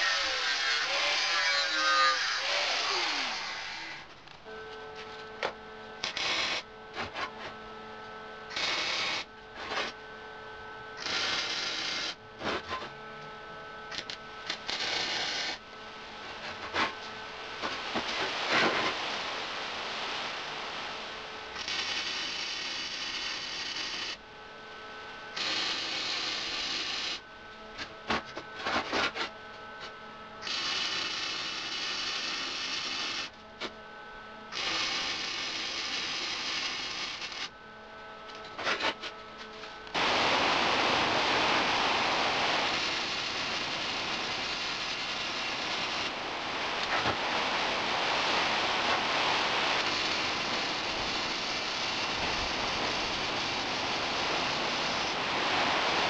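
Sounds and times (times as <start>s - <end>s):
welder arc sizzling: 0.0s - 4.2s, 6.0s - 7.3s, 8.5s - 10.0s, 11.0s - 12.7s, 13.9s - 15.6s, 17.6s - 24.2s, 25.3s - 27.2s, 30.4s - 33.3s, 34.5s - 37.5s, 39.9s - 56.0s.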